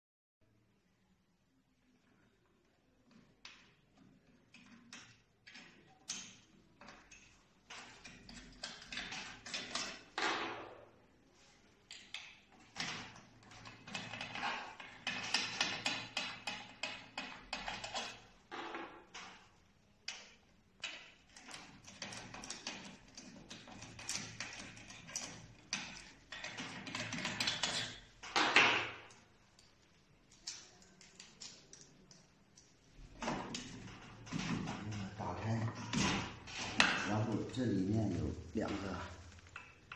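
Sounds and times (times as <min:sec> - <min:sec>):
screws rattling on wooden table: 0:12.6 - 0:19.4.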